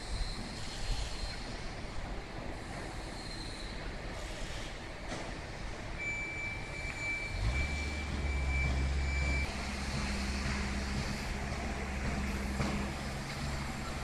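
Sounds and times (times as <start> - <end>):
construction site noise: 0.0 - 14.0
heavy engine droning: 4.4 - 14.0.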